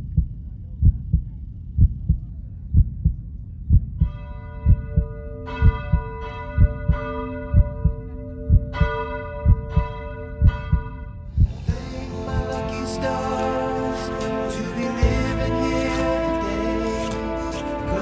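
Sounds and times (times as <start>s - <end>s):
heartbeat thumps: 0.0s - 12.6s.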